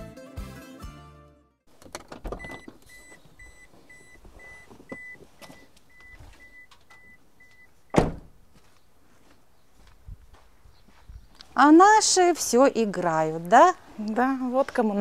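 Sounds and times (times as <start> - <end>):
car warning chime beeping: 2.4 - 8.0
car door slamming shut: 7.9 - 8.4.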